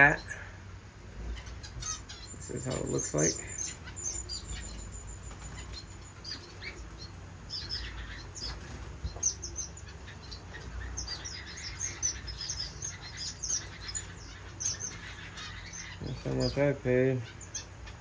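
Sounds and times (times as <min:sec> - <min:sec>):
finches chirping: 0:00.0 - 0:18.0.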